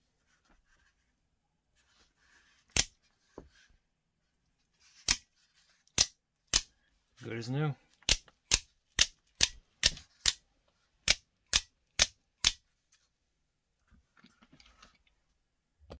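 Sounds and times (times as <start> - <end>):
faint handling noise: 0.0 - 6.0, 12.7 - 16.0.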